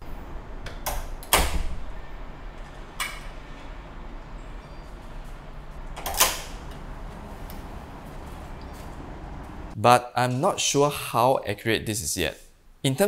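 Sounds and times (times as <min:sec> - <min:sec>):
lock click: 0:00.6 - 0:01.7, 0:06.0 - 0:06.8
mechanical lock sound: 0:05.9 - 0:06.8.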